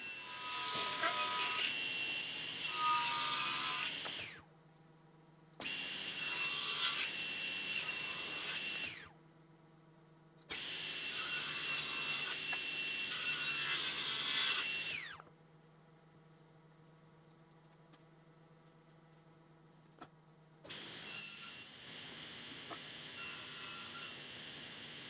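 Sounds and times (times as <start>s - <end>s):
table saw cutting: 0.0s - 4.4s, 5.6s - 9.0s, 10.5s - 15.1s, 20.7s - 25.0s.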